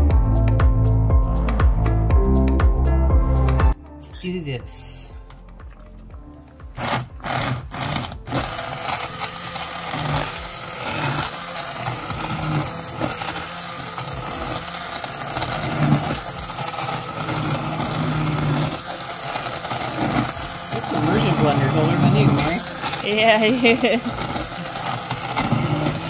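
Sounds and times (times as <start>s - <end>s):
immersion blender running: 6.6s - 26.0s.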